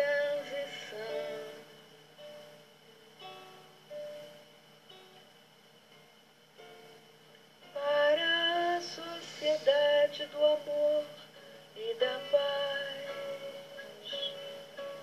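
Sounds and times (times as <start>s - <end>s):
woman singing: 0.0s - 1.8s, 7.7s - 14.7s.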